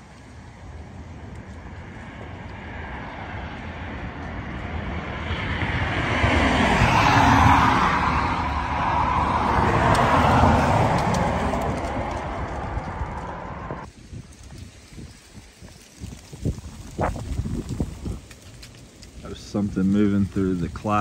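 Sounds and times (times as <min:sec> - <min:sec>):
low-flying aircraft passing: 0:00.0 - 0:13.9.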